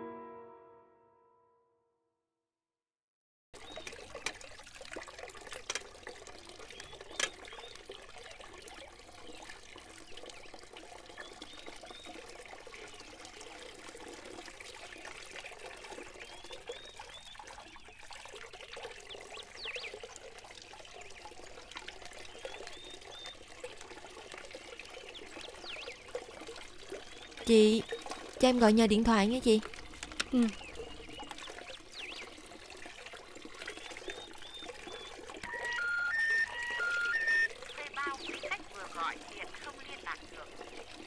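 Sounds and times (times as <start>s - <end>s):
small waterfall trickling and splashing: 3.6s - 41.0s
faint high chirps: 35.4s - 37.5s.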